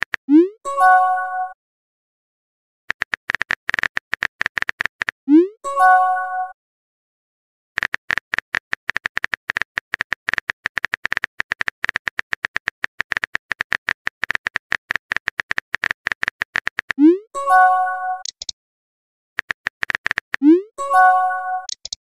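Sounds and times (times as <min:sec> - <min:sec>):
message pop chime: 0:00.3 - 0:01.6, 0:05.3 - 0:06.6, 0:17.0 - 0:18.4, 0:20.4 - 0:21.8
phone keyboard typing clicks: 0:02.9 - 0:05.2, 0:07.8 - 0:17.0, 0:18.2 - 0:18.5, 0:19.4 - 0:20.5, 0:21.6 - 0:22.0.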